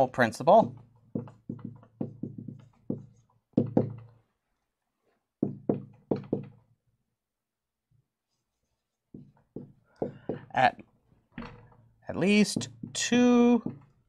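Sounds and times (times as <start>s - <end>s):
marker tapping on whiteboard: 0.6s - 4.2s, 5.4s - 6.6s, 9.1s - 10.7s, 12.2s - 14.0s.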